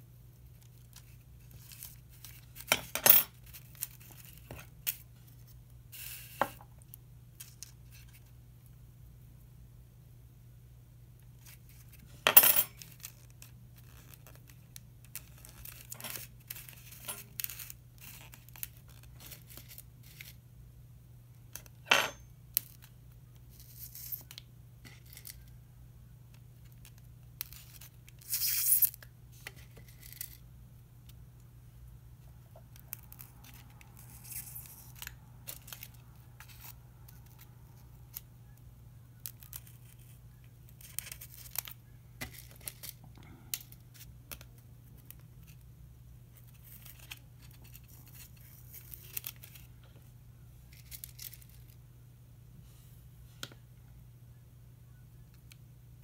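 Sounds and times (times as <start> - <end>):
faint low hum: 0.0 - 56.0
paper strips rustling: 46.3 - 49.8.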